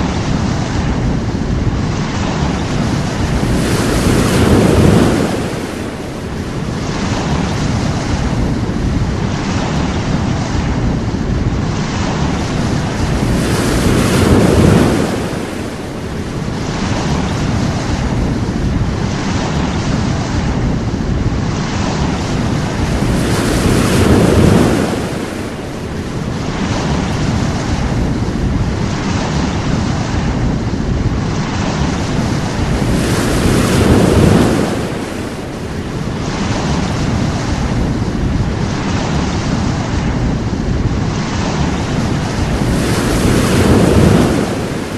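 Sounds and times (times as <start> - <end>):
sea waves breaking on shore: 0.0 - 44.9.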